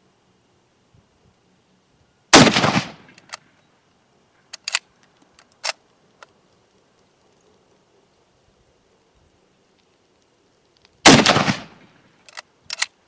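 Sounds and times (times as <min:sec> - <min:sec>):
rifle shot with echo: 0:02.3 - 0:03.2, 0:11.0 - 0:12.0
rifle bolt clicking: 0:04.5 - 0:05.8, 0:12.3 - 0:13.0.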